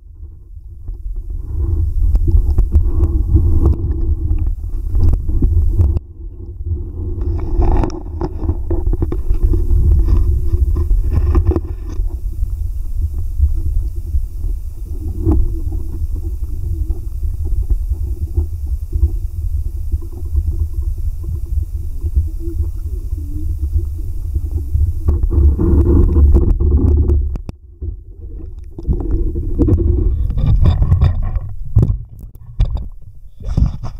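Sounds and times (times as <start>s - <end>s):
stream water rumbling: 0.8s - 33.7s
small clicks and knocks: 25.0s - 33.9s.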